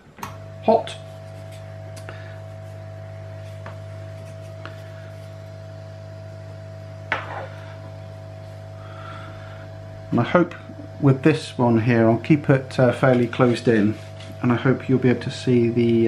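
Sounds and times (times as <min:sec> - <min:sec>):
hot air blower hum and whine: 0:00.0 - 0:16.0.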